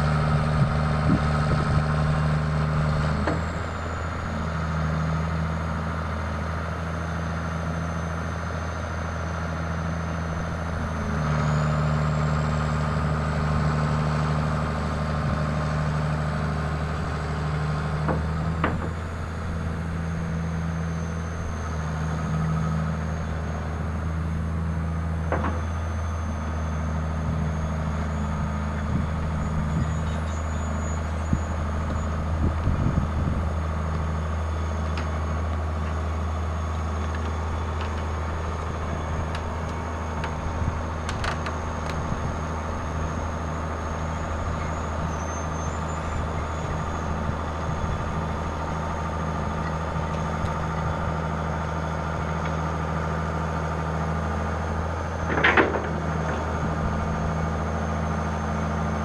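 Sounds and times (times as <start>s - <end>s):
diesel excavator engine running: 0.0s - 59.0s
short clicks and knocks: 55.3s - 56.5s.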